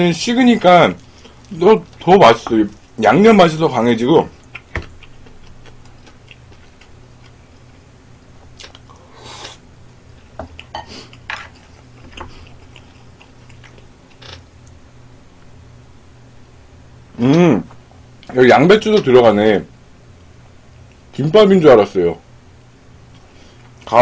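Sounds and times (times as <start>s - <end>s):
faint low hum: 0.0s - 24.0s
person chewing: 1.0s - 3.0s, 4.3s - 7.8s, 8.5s - 9.6s, 10.2s - 14.8s.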